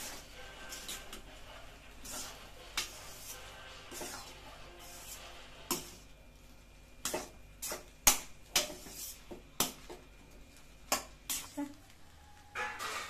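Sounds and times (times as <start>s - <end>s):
metal spatula scraping pan: 0.0s - 6.1s, 7.0s - 10.0s, 12.5s - 13.0s.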